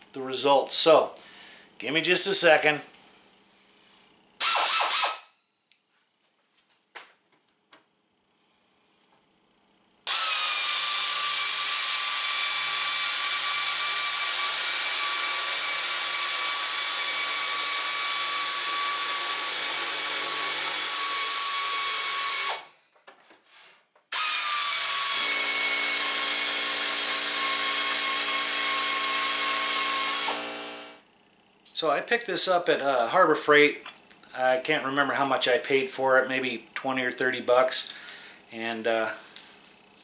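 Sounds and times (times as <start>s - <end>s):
air shears whining: 24.1s - 31.0s.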